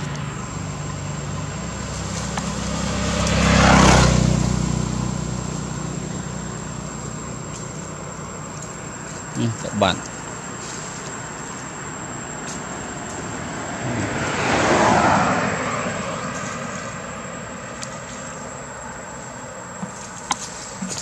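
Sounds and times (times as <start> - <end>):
aircraft passing overhead: 0.0 - 19.8.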